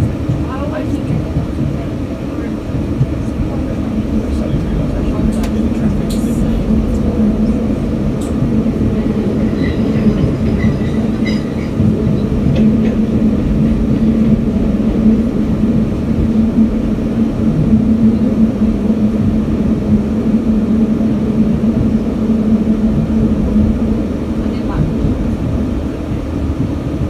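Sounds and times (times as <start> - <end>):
droning hum: 0.0 - 27.0
train wheels rumbling on rails: 0.0 - 27.0.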